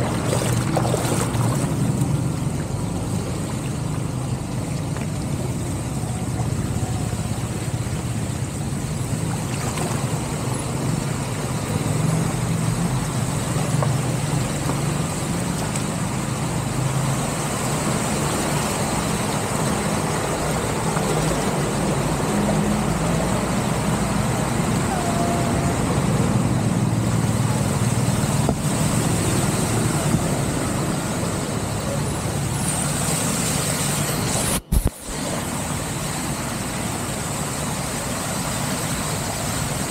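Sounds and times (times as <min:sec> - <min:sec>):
water running into a drain: 0:00.0 - 0:25.0
cars driving through floodwater: 0:00.0 - 0:39.9.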